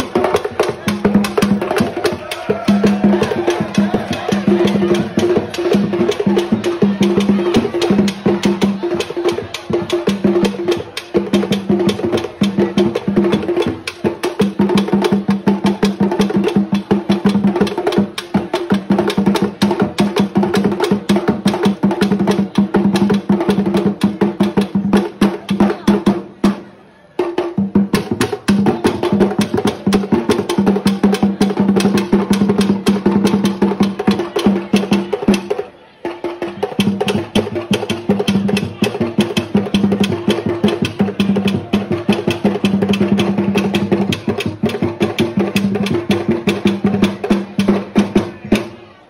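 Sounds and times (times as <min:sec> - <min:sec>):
fast drums: 0:00.0 - 0:48.9.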